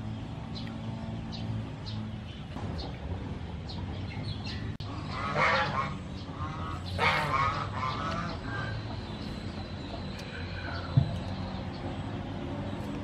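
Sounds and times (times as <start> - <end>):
bird calls: 3.6 - 13.0.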